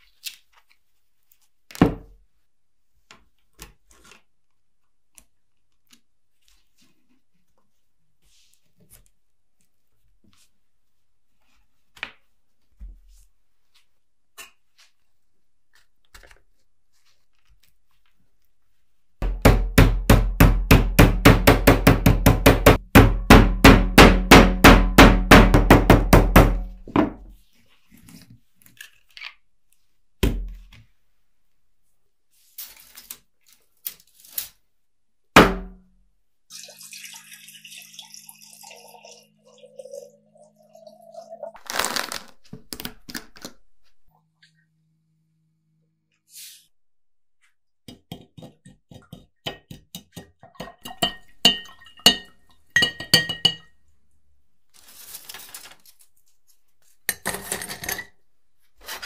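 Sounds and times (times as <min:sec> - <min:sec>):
water poured into glass jar: 0:36.5 - 0:41.9, 0:50.8 - 0:52.4.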